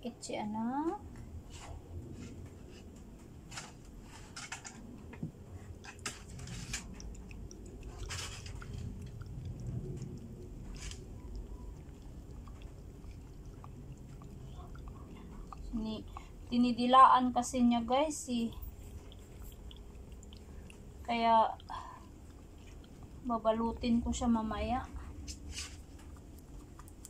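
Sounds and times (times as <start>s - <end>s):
dog licking paw: 5.8s - 16.8s, 18.6s - 23.3s, 24.9s - 27.0s.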